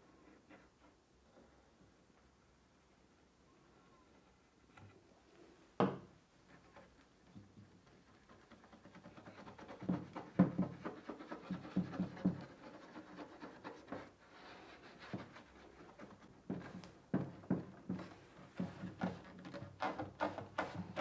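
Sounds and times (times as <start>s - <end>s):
fingertip rubbing on wood: 8.2s - 16.8s.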